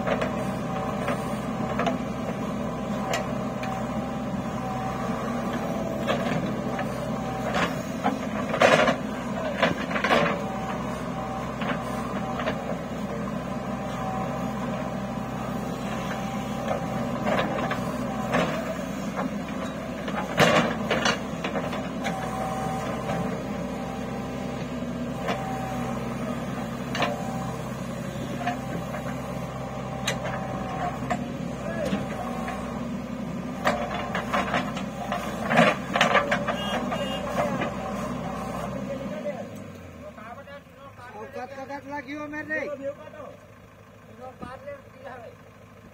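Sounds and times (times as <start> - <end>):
diesel engine running: 0.0 - 45.9
bucket and arm clanking: 5.4 - 38.5.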